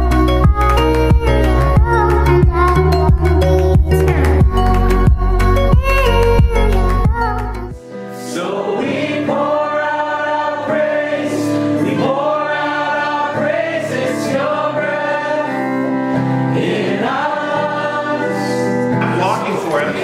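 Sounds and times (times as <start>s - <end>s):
group singing a worship song: 0.0s - 19.9s.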